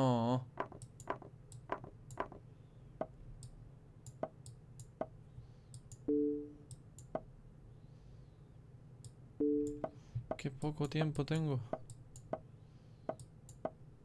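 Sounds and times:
chess move clicks: 0.6s - 2.4s, 9.0s - 12.5s.

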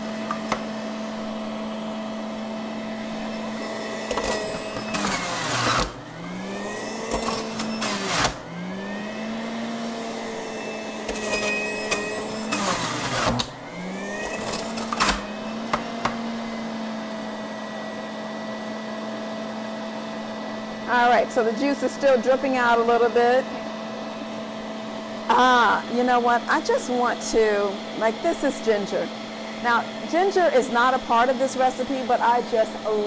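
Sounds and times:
carrots shredded with grinding rasp: 0.0s - 18.6s
juicer motor whine: 0.0s - 33.0s.

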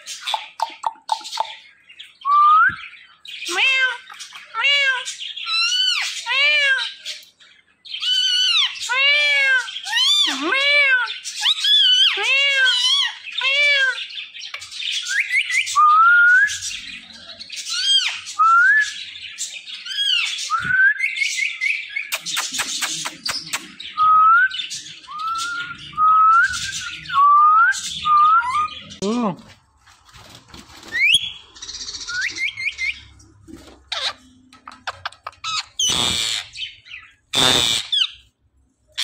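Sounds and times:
parakeet calling: 33.9s - 38.3s.

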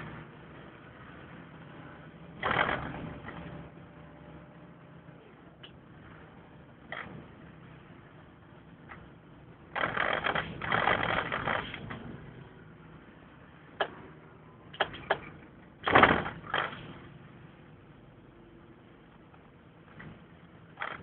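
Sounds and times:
vehicle cabin noise: 2.3s - 4.1s, 13.7s - 17.2s
sharp clicks and knocks: 9.8s - 12.1s, 14.7s - 16.9s
thump: 15.9s - 16.4s.

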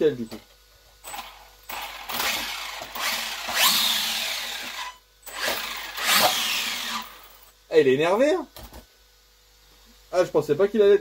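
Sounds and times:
rc truck electric motor whine: 1.0s - 7.5s.

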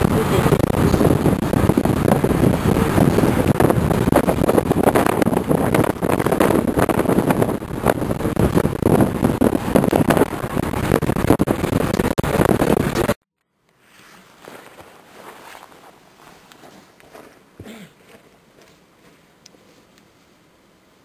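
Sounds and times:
road noise inside a vehicle: 0.0s - 12.1s
wind buffeting the microphone: 0.0s - 13.2s.

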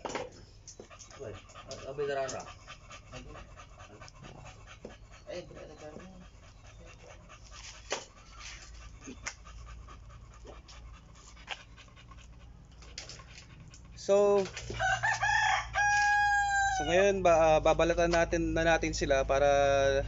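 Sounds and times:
rooster crowing: 14.8s - 17.0s.

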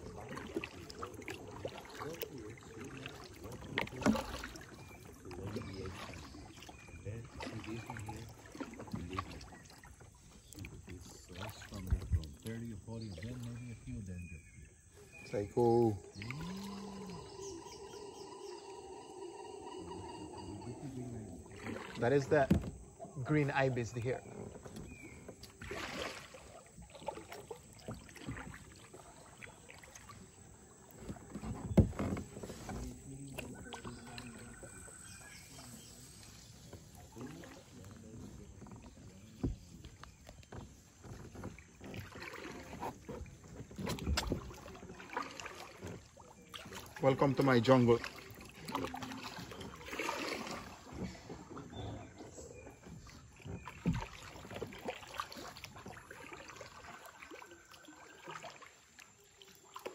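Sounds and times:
insects chorus: 0.0s - 59.9s
paddle swishing through water: 0.0s - 59.9s
faint bird chirps: 4.5s - 8.3s, 9.2s - 21.9s, 27.8s - 40.9s.

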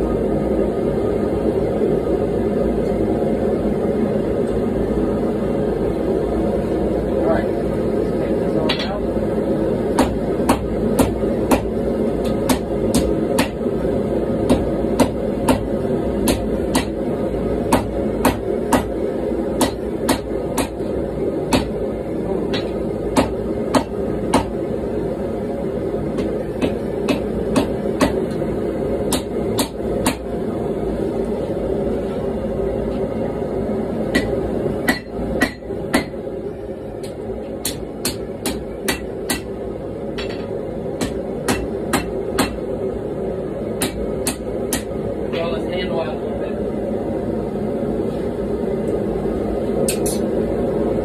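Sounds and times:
gas forge rushing: 0.0s - 51.0s
hammer striking metal on anvil: 10.0s - 13.6s, 14.5s - 17.0s, 17.7s - 18.9s, 19.6s - 20.8s, 21.5s - 21.7s, 22.5s - 24.5s, 26.2s - 28.2s, 34.1s - 36.1s, 37.6s - 39.5s, 40.1s - 42.6s, 43.8s - 44.9s.

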